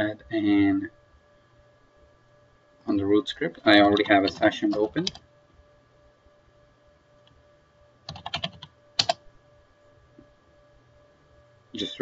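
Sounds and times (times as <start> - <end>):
faint steady hum: 0.0 - 12.0
keyboard typing: 3.8 - 5.2, 8.0 - 9.3.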